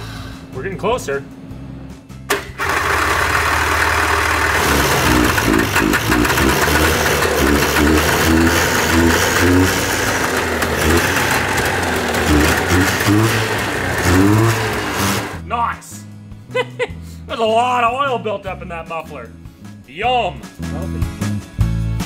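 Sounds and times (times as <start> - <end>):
two-stroke engine idling: 2.5 - 15.4.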